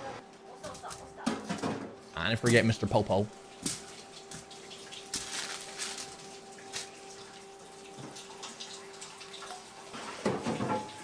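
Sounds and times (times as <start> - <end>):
water running and splashing: 3.4 - 10.6.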